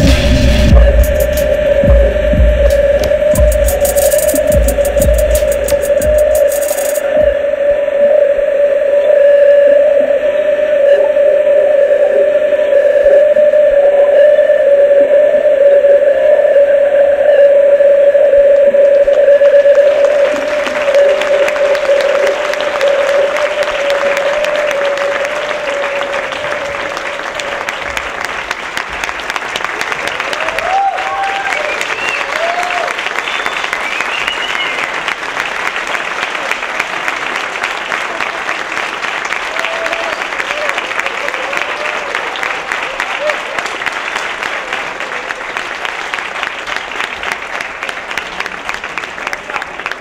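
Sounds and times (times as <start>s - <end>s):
audience applauding: 0.0s - 7.3s, 18.9s - 50.0s
steady tone: 0.0s - 27.1s.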